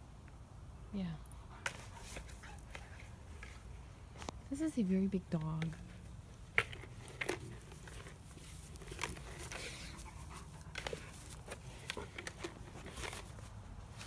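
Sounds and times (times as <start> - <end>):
dog chewing: 6.8 - 13.4.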